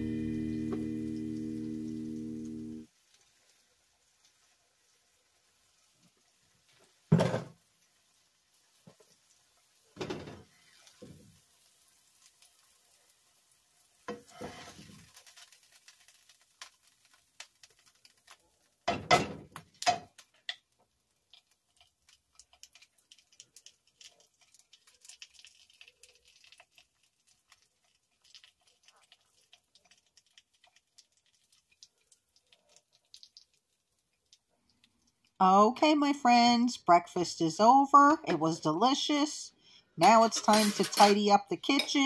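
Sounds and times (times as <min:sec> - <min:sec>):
spatula scraping a frying pan: 0:14.1 - 0:16.7.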